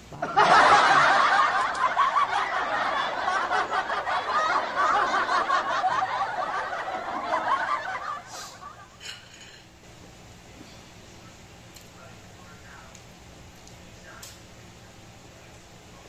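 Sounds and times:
many voices snickering and chuckling: 0.0 - 9.2.

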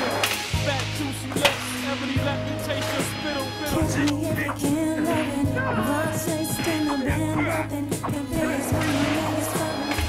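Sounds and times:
song with bass and singing: 3.7 - 10.0.

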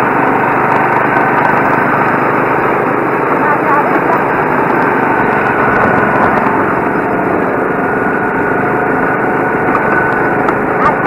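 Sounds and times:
go-kart engines running: 0.0 - 11.0.

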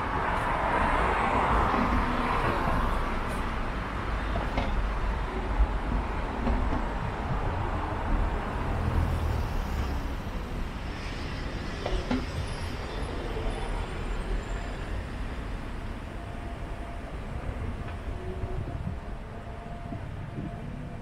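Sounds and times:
low rumble of traffic: 0.0 - 21.0.

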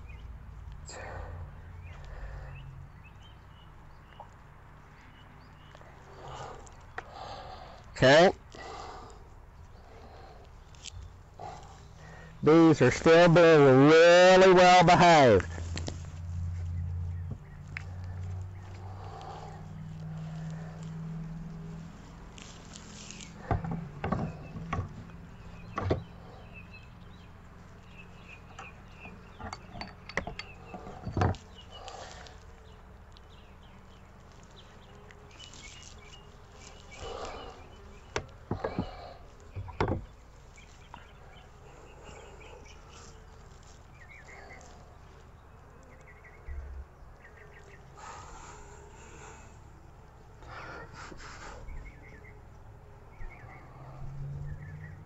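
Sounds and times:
birds chirping: 0.0 - 55.0
wooden frame knocking and clicking: 23.5 - 25.0, 29.1 - 31.4.

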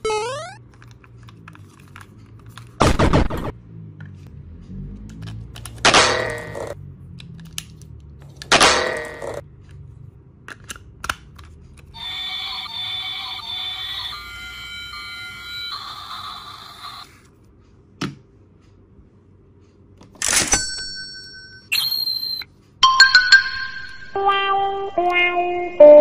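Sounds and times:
electronic beeping tones: 0.0 - 0.6.

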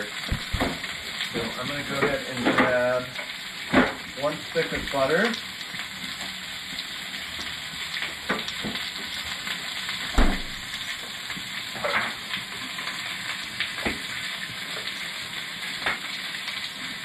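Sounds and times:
onion sizzling in oil: 0.0 - 17.0
loud thump: 0.3 - 0.8, 10.2 - 10.6.

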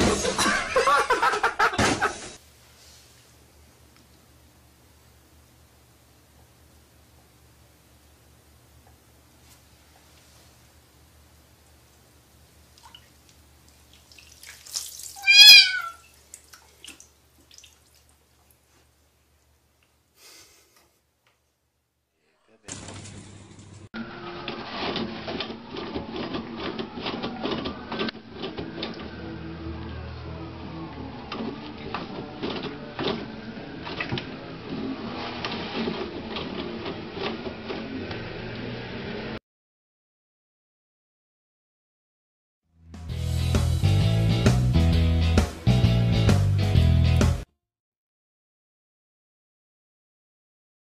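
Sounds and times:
water splashing: 12.7 - 18.6
cat meowing: 15.2 - 16.1
paper rustling: 22.7 - 23.9
toilet paper tearing: 34.0 - 38.0.

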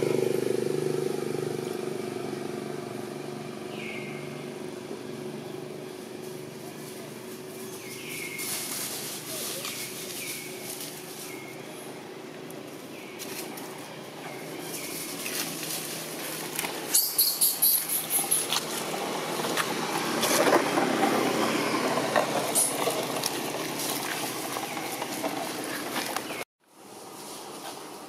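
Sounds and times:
dry leaves rustling and crackling: 6.0 - 11.9, 12.5 - 28.0.

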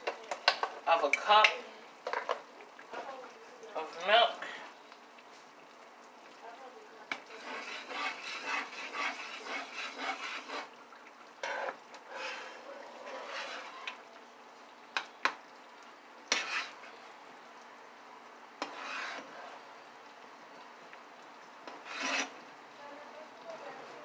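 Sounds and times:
utensil scraping pot: 7.1 - 10.8, 11.4 - 14.0, 16.3 - 17.0, 18.6 - 19.6, 21.6 - 22.4.

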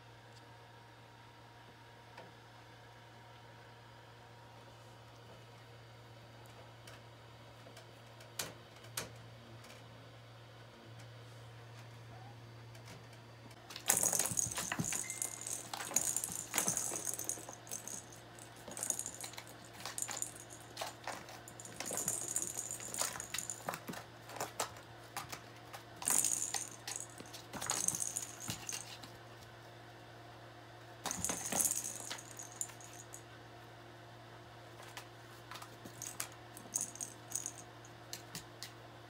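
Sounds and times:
small objects rattling and jingling: 13.7 - 24.7, 26.0 - 29.0, 31.1 - 33.2, 35.9 - 37.7.

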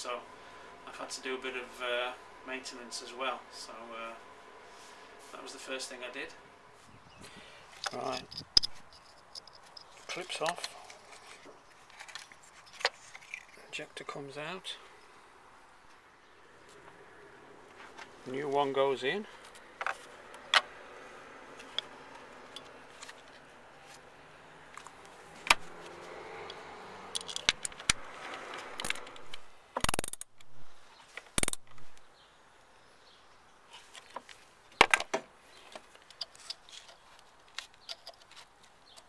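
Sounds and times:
plastic and metal parts clicking: 7.8 - 13.6, 27.1 - 30.5, 31.2 - 32.0, 34.0 - 39.0.

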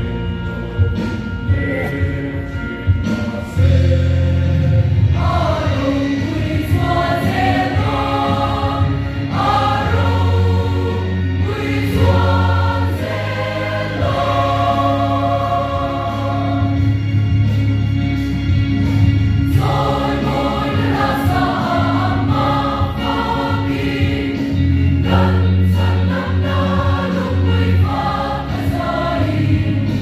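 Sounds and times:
choir singing a hymn: 0.0 - 17.9, 19.2 - 30.0
sustained deep bass notes: 0.0 - 30.0.

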